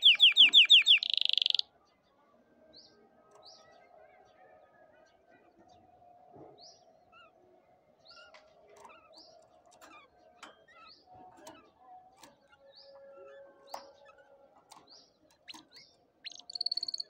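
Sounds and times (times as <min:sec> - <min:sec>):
canary chirping: 0:00.0 - 0:01.7, 0:08.1 - 0:17.0.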